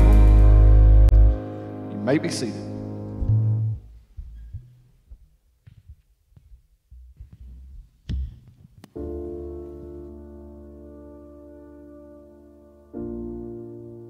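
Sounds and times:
sustained keyboard chord: 0:00.0 - 0:03.9, 0:09.0 - 0:14.0.

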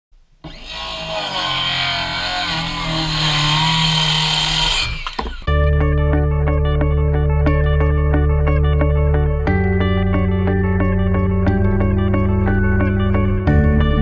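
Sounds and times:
circular saw cutting wood: 0:00.4 - 0:05.5
guitar music with steady beat: 0:05.5 - 0:14.0.

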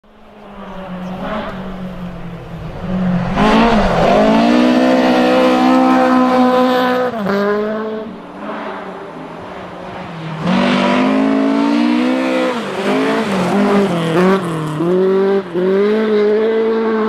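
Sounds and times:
car engine revving: 0:00.2 - 0:17.0.

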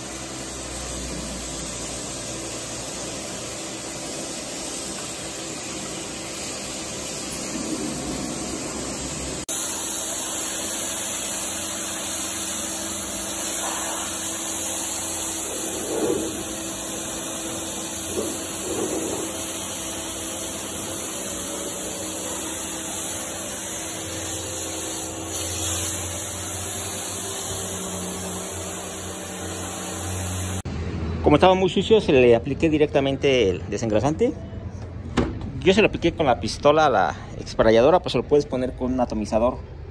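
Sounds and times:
spray gun hissing: 0:00.0 - 0:30.7
sprayer motor running: 0:04.9 - 0:30.6.

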